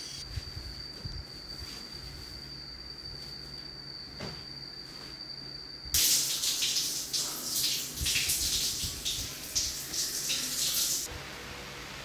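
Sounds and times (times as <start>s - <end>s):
shower spray splashing: 6.0s - 11.1s.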